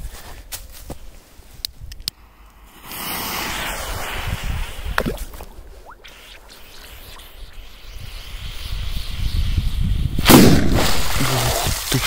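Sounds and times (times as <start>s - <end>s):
firecracker fuse hissing: 2.6s - 12.0s.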